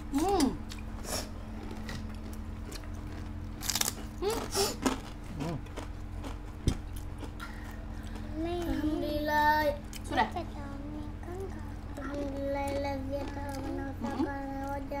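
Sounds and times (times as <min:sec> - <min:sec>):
crunching crispy crackers: 0:01.5 - 0:08.2, 0:11.9 - 0:14.9.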